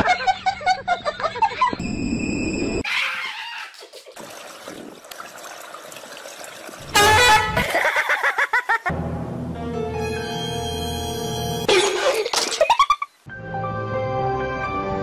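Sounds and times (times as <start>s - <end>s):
water noise: 4.0s - 8.8s.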